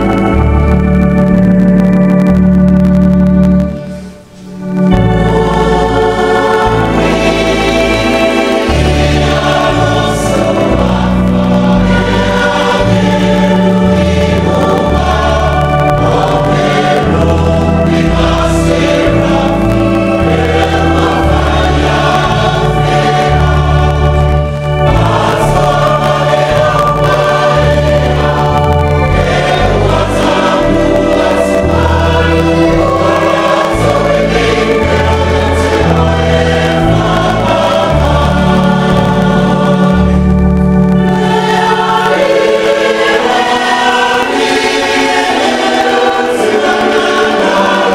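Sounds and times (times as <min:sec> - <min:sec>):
congregation singing a hymn: 0:00.0 - 0:47.9.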